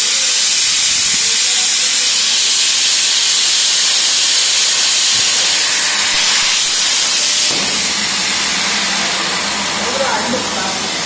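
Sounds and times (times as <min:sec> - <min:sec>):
plasma torch hissing: 0:00.0 - 0:11.0.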